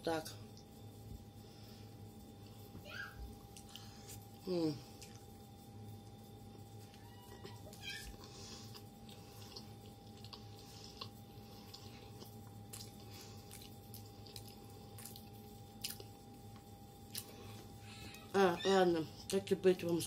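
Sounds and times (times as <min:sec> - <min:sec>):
wet chewing and mouth sounds: 0:03.3 - 0:06.2, 0:06.8 - 0:18.3.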